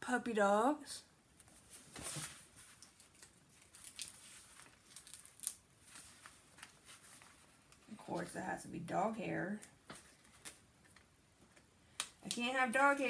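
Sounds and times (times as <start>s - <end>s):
canvas sheet rustling and crinkling: 1.5s - 8.3s.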